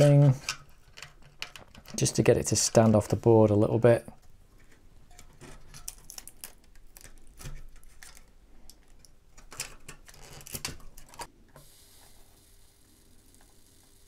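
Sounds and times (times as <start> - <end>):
plastic pieces clicking: 0.4 - 2.2, 5.2 - 11.3.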